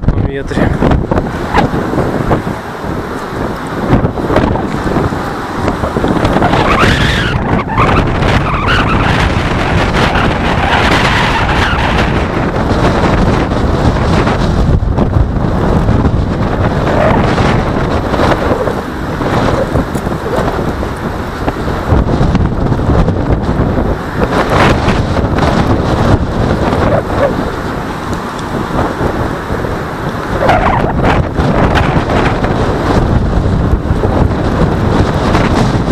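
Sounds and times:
wind buffeting microphone: 0.0s - 35.9s
road traffic hiss: 0.6s - 6.8s, 25.2s - 30.5s.

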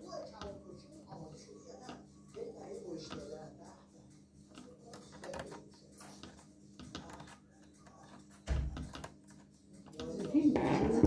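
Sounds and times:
small tools clicking and tapping: 4.5s - 10.5s.

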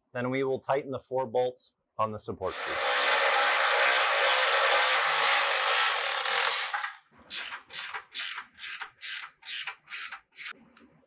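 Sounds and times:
cordless electric ratchet spinning: 2.5s - 10.6s.

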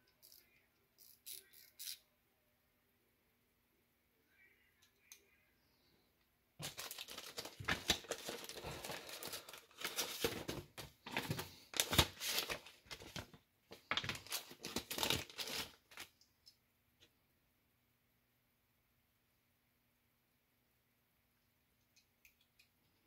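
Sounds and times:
plastic bag crinkling: 6.6s - 16.1s.

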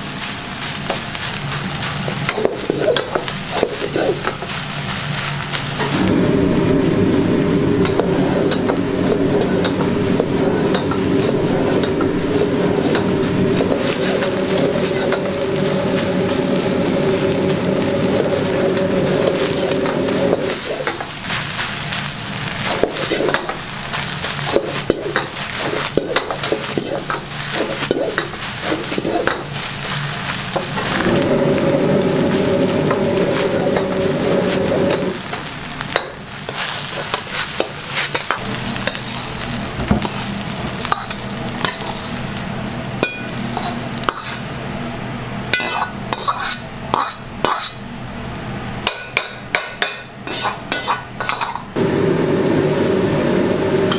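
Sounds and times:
food sizzling: 0.0s - 47.8s, 48.8s - 53.9s
gas burner humming: 0.0s - 53.9s
ladle scraping and knocking in wok: 7.7s - 22.0s, 22.6s - 44.5s, 45.5s - 47.8s, 48.8s - 51.8s.

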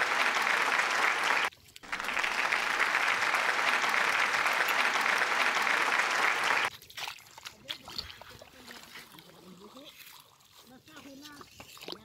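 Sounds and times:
hands clapping: 0.0s - 6.7s.

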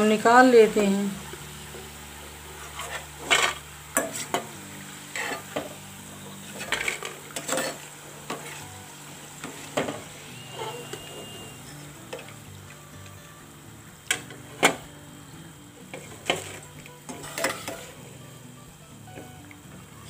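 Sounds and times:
banana slices sizzling in oil: 0.0s - 20.0s
metal ladle scraping a pan: 1.7s - 12.4s, 15.9s - 18.2s.

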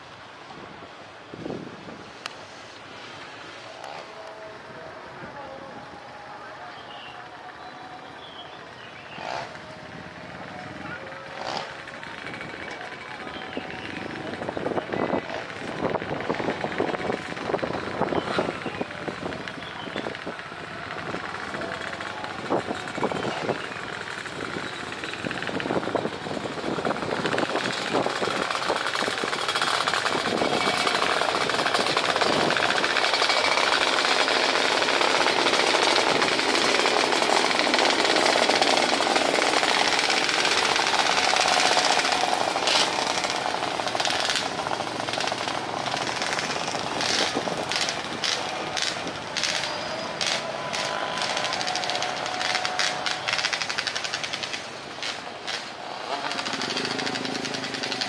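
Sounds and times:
rattling clatter: 21.1s - 58.0s.

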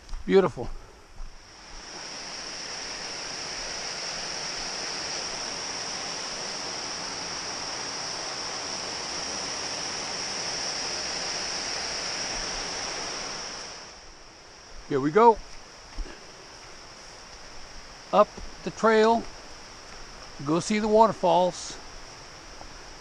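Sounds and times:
waterfall pouring into pool: 1.8s - 13.9s.

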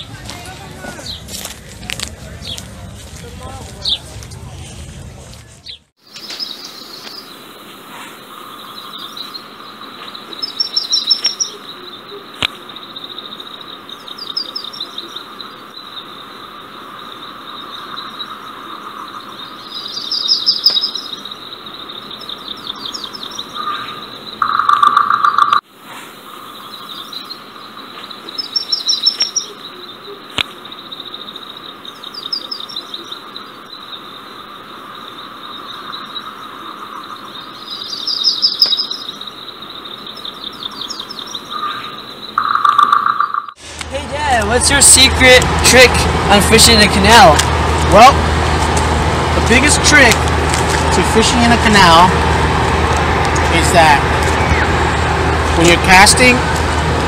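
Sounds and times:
birds chirping and singing: 5.4s - 25.6s, 26.4s - 43.6s, 53.4s - 56.6s.

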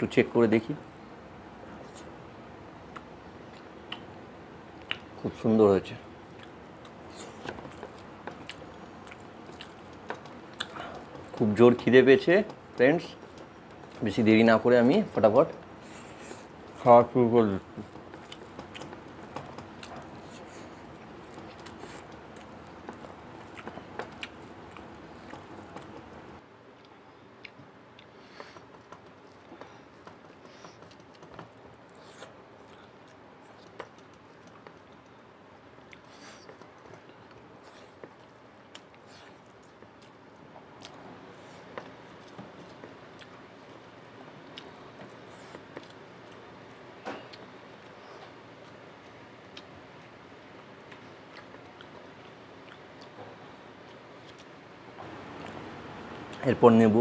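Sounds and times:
steady background noise: 0.0s - 57.0s
person chewing: 4.8s - 5.2s, 6.3s - 11.4s, 17.7s - 35.1s, 35.8s - 50.2s, 50.8s - 56.4s
fingers mixing rice on plate: 6.4s - 26.2s.

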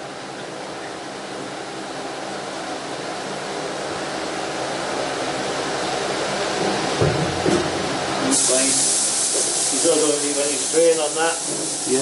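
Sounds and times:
steady rushing hiss: 7.8s - 12.0s.

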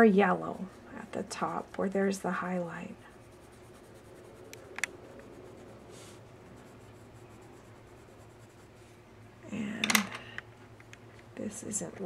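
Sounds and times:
low steady hum: 0.0s - 12.0s
pencil scratching on paper: 0.4s - 9.0s.

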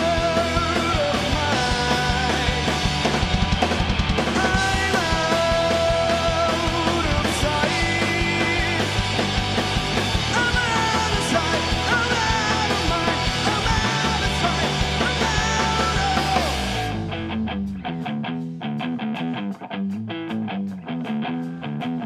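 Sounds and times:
person singing: 0.0s - 2.9s, 4.3s - 9.0s, 10.3s - 17.0s
bass guitar: 0.0s - 22.0s
distorted electric guitars: 0.0s - 22.0s
drums: 0.0s - 22.0s.

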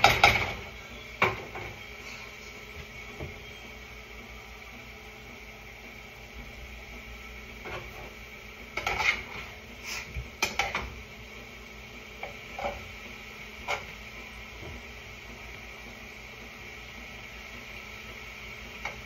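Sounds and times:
faint high whine: 0.0s - 8.5s
utensil scraping food in saucepan: 7.6s - 11.0s, 12.1s - 14.4s.

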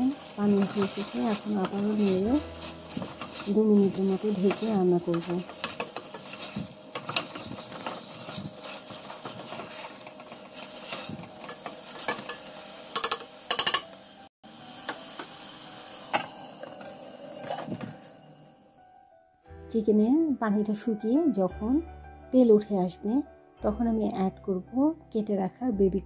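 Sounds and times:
wooden spoon scraping a pot: 0.0s - 12.4s
meat sizzling in a pot: 0.0s - 18.5s.

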